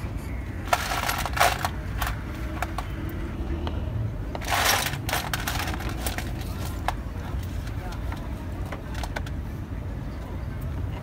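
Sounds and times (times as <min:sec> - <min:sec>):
small metal parts clinking: 0:00.7 - 0:02.8, 0:04.4 - 0:06.5.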